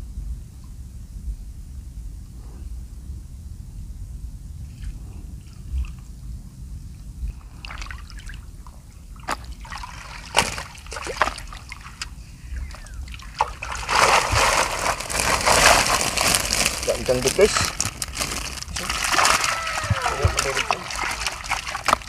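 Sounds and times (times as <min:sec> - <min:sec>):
shallow water splashing: 0:07.5 - 0:22.0.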